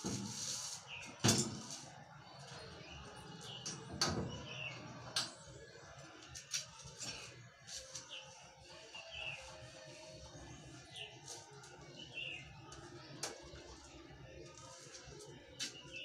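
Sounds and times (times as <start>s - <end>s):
birds chirping: 2.4s - 5.1s, 10.8s - 13.2s.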